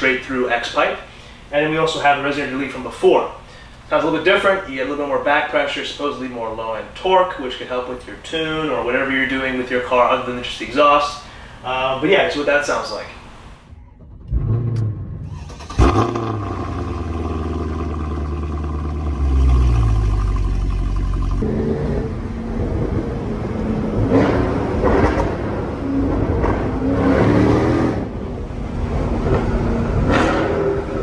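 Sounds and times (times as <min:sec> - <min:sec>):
car engine burbling and accelerating: 0:13.7 - 0:31.0.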